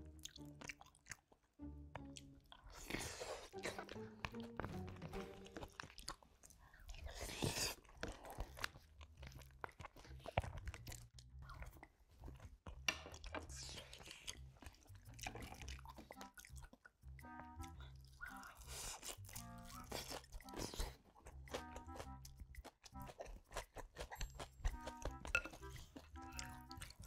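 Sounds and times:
chewing and biting: 0:00.0 - 0:27.0
food crunching: 0:00.0 - 0:27.0
chopsticks clicking on dishes: 0:24.1 - 0:25.7.

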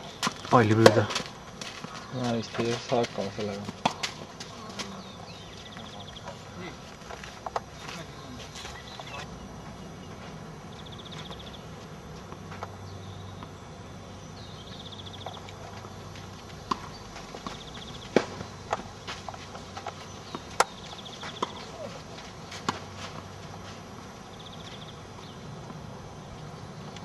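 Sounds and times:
tennis ball struck by rackets: 0:03.6 - 0:05.0, 0:16.6 - 0:21.8.

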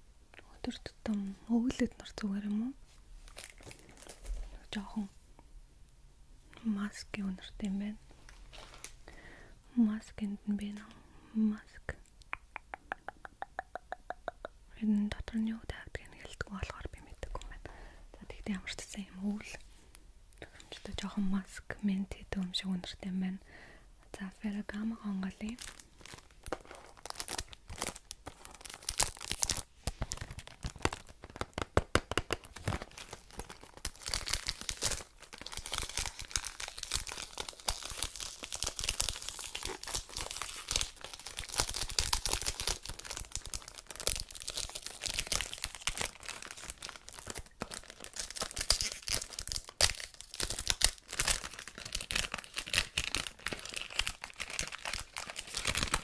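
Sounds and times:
cellophane wrap crinkling: 0:03.2 - 0:04.6, 0:08.2 - 0:09.0, 0:25.3 - 0:56.0.

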